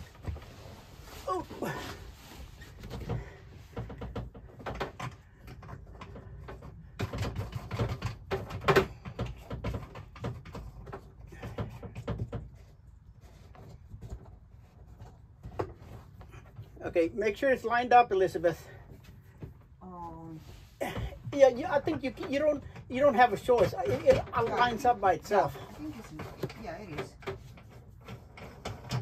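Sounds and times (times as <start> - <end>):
rustling: 0.0 - 8.0
knocks and bumps in cabinet: 2.8 - 12.7, 23.4 - 25.0.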